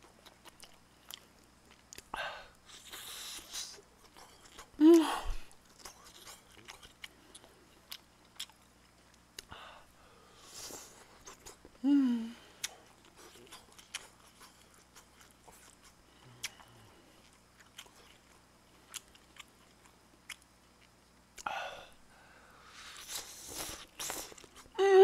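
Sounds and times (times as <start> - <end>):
soft chewing: 0.0 - 24.8
person humming briefly: 4.8 - 5.5, 11.8 - 12.4, 24.8 - 25.0.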